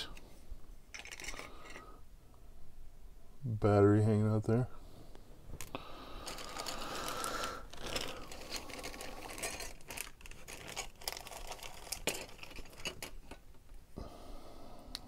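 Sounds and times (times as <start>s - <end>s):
plastic parts clicking together: 0.9s - 1.8s, 7.6s - 13.7s
plastic bag crinkling: 6.2s - 13.4s.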